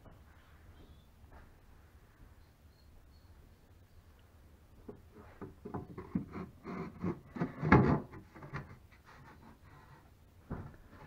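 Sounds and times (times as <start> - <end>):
wooden knocks and scrapes: 4.9 - 11.0.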